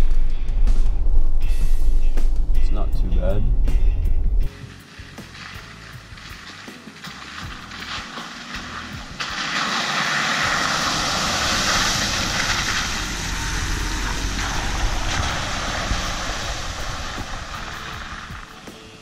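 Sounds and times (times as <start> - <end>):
engine rumble passing: 0.0 - 19.0
water splashing: 4.5 - 19.0.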